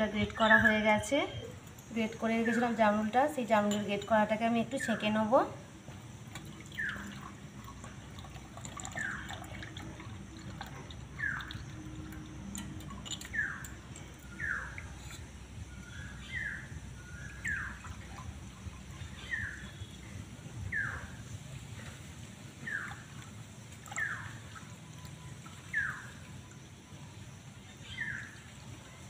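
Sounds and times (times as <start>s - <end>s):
juice trickling into a glass: 5.9s - 20.0s
bird chirping: 6.6s - 7.4s, 10.7s - 21.5s, 22.6s - 23.2s, 23.8s - 29.0s.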